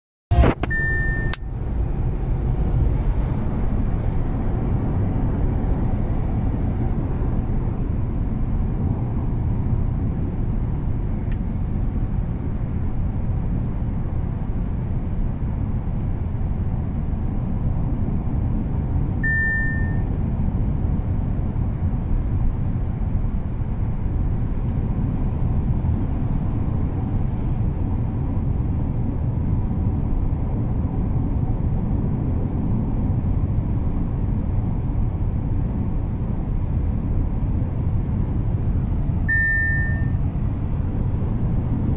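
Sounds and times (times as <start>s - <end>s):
short high beep: 0.3s - 1.5s, 19.2s - 20.1s, 39.2s - 40.2s
road and engine rumble in car: 0.3s - 41.9s.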